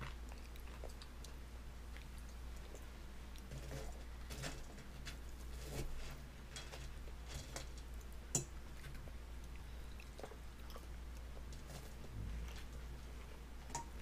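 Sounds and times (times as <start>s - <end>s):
baby chewing food: 0.0s - 4.3s, 7.9s - 14.0s
steady low hum: 0.0s - 14.0s.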